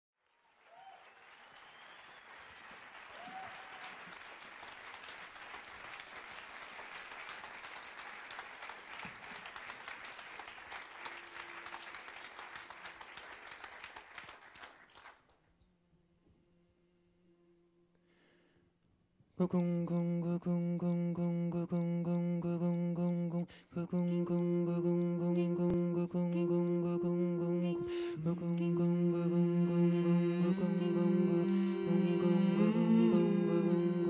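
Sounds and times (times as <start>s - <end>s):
audience applauding: 0.2s - 15.4s.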